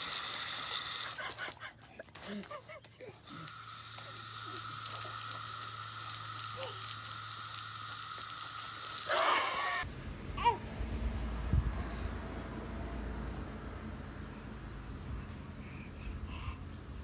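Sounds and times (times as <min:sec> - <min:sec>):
water jet spraying: 0:03.5 - 0:09.8.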